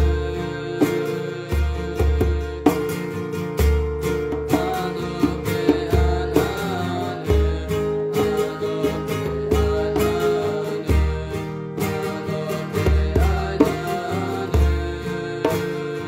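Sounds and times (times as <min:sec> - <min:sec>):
strummed acoustic guitar: 0:00.0 - 0:16.0.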